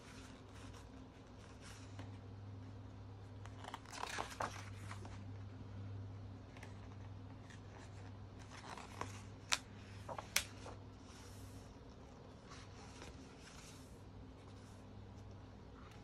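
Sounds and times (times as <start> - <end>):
magazine pages rustling: 3.3 - 5.4, 6.4 - 11.6, 12.4 - 15.3.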